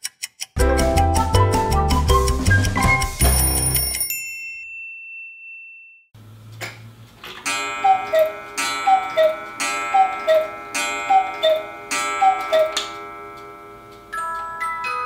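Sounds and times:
clock mechanism click: 7.3s - 14.0s
cuckoo clock call: 7.4s - 15.0s.

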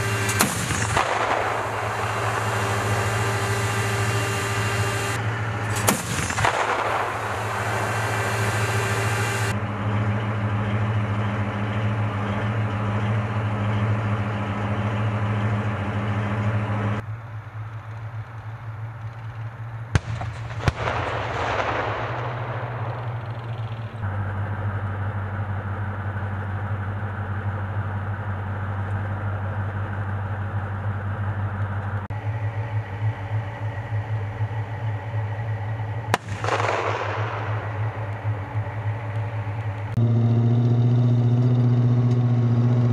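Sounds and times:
cannon shots echoing: 0.0s - 9.5s, 19.9s - 24.0s, 36.0s - 39.9s
diesel engine running: 0.0s - 42.9s.

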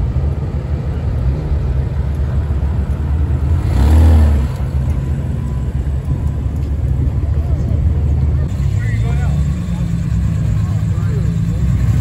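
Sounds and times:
car engine rumbling past: 1.4s - 12.0s.

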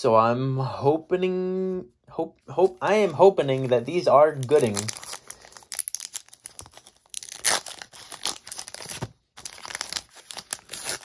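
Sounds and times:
foil wrapper crinkling and tearing: 2.8s - 11.0s.

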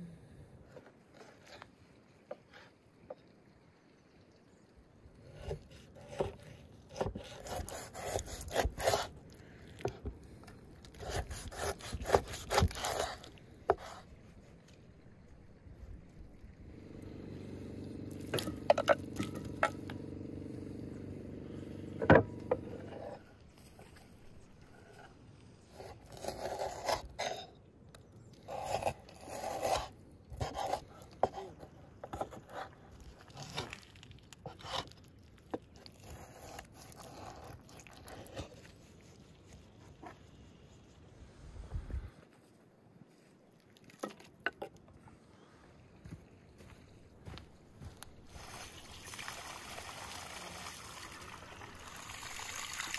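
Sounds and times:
knife crunching through bone: 6.9s - 9.2s, 10.8s - 14.0s, 33.2s - 38.9s
low steady hum: 13.1s - 26.3s.

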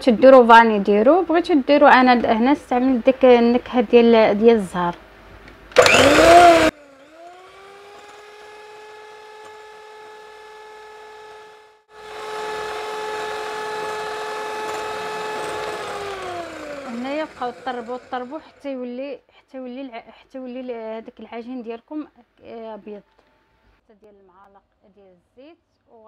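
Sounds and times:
loud noisy burst: 5.8s - 6.8s
electric mixer whining: 5.8s - 18.6s.

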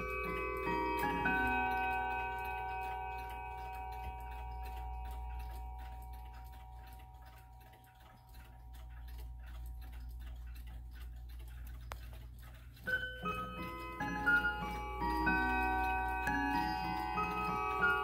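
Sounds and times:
clock chime ringing: 0.0s - 9.2s, 12.9s - 18.0s
clock ticking: 0.0s - 18.0s.

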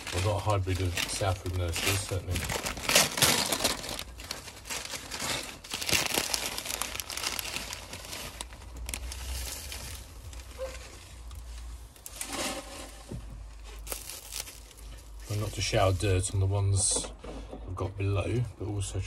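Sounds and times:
newspaper crumpling: 0.0s - 12.8s, 13.6s - 16.3s
bubble wrap crinkling: 0.0s - 16.4s.

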